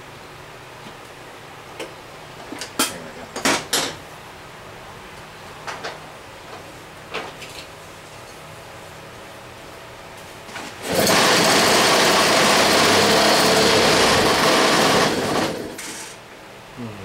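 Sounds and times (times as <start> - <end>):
recoil starter pull: 10.8 - 16.1
two-stroke engine running: 10.9 - 15.9.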